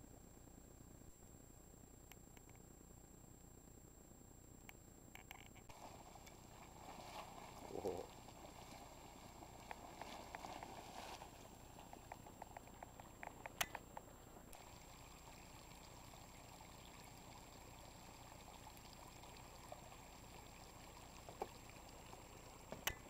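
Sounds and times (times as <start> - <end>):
small pops: 11.8 - 14.1, 21.2 - 23.0
water bubbling and trickling: 14.6 - 23.0.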